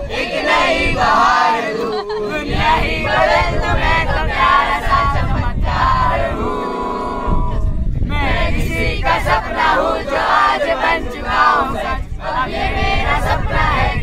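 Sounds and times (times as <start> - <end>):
long group shout: 0.0 - 7.6
young people shouting and chanting: 0.0 - 14.0.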